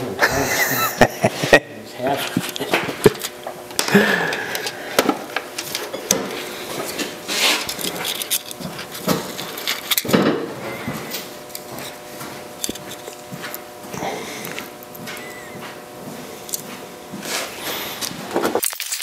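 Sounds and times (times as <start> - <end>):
metal shim crinkling and scraping: 4.5 - 13.8.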